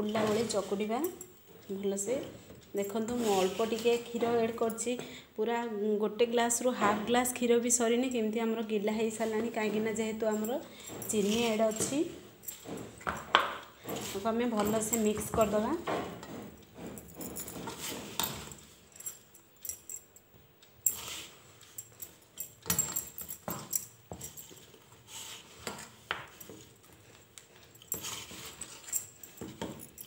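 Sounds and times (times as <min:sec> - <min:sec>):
dough kneaded in metal bowl: 0:00.0 - 0:30.0
light metallic clinks: 0:09.2 - 0:30.0.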